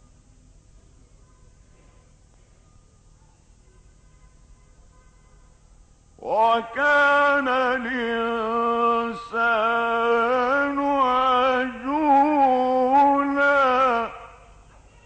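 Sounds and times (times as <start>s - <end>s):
man chanting melodically: 6.2s - 14.5s.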